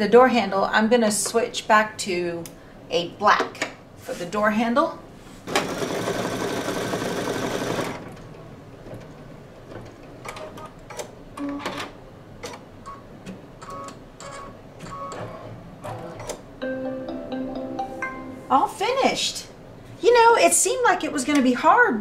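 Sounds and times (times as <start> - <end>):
embroidery machine stitching: 5.5 - 8.2.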